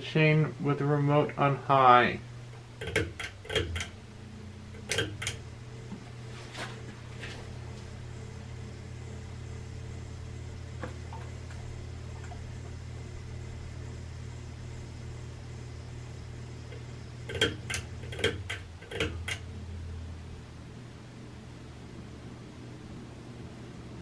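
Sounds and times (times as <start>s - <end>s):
ceiling fan motor humming: 0.0s - 24.0s
pull-chain switch clicks: 2.6s - 4.0s, 4.7s - 5.5s, 16.7s - 19.5s.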